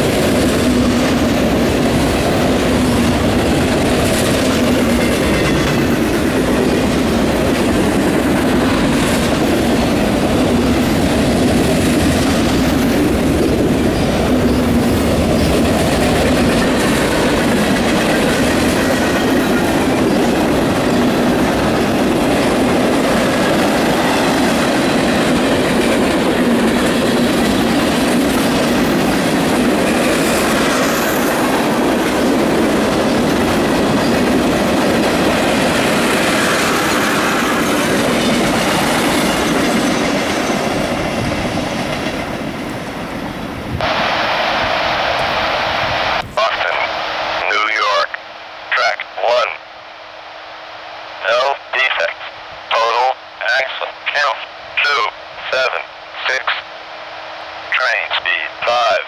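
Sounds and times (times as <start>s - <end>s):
train wheels running on rails: 0.0s - 45.6s.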